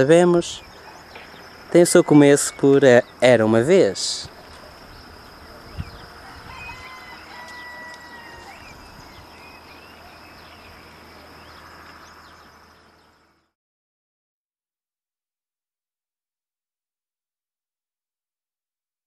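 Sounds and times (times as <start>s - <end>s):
high insect trill: 0.0s - 13.5s
rooster crowing: 5.8s - 9.2s.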